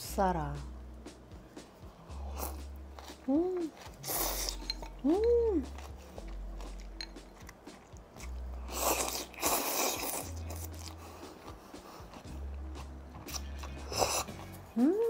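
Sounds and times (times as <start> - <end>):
person slurping noodles: 2.2 - 4.7, 8.6 - 12.2, 13.3 - 14.4
crunching vegetables: 2.3 - 11.0.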